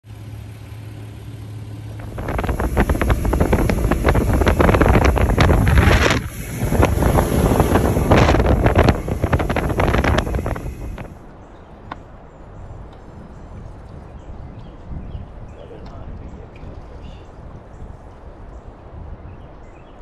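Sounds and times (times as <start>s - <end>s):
outboard motor running: 0.0s - 11.2s
low hum: 0.1s - 12.0s
wind buffeting microphone: 1.9s - 20.0s.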